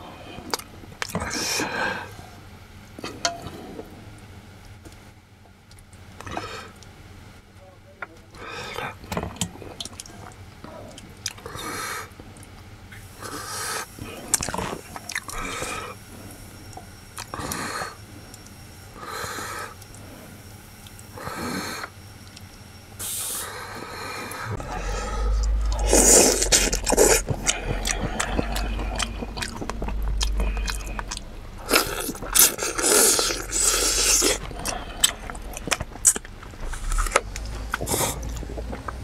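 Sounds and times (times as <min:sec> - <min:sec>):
heavy breaths: 0:23.7 - 0:38.6
slurp: 0:24.4 - 0:39.0
man chewing: 0:24.5 - 0:39.0.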